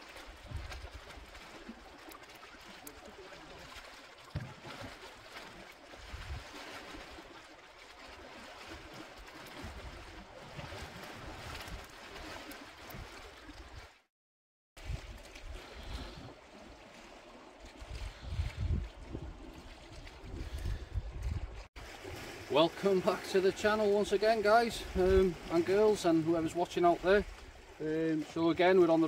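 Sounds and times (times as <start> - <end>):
wind buffeting microphone: 6.0 - 6.5, 17.7 - 21.7, 24.8 - 25.4
surf washing over rocks: 21.9 - 29.0.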